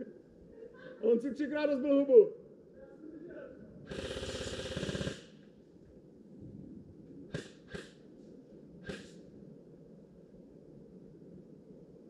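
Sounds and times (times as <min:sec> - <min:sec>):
short sharp cracks: 0:07.3 - 0:08.0, 0:08.8 - 0:09.2.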